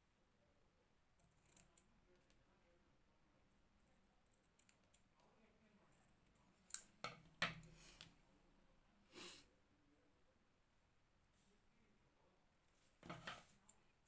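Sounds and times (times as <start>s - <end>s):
scissors snipping thread: 1.2s - 2.4s.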